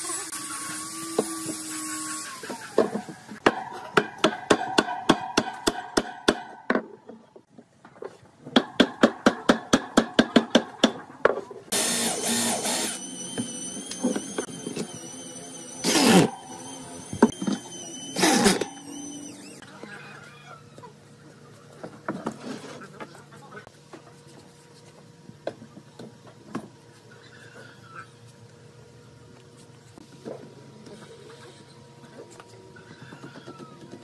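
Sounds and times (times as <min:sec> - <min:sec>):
electric drill driving screws: 0:00.0 - 0:03.0, 0:11.7 - 0:19.6.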